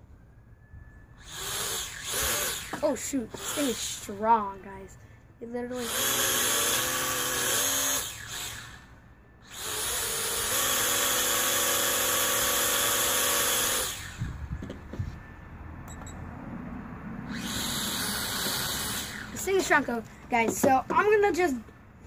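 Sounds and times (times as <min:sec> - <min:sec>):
toy drone propellers whirring: 0:01.2 - 0:04.6, 0:05.4 - 0:14.5, 0:17.3 - 0:20.0
handling bumps: 0:19.6 - 0:21.8.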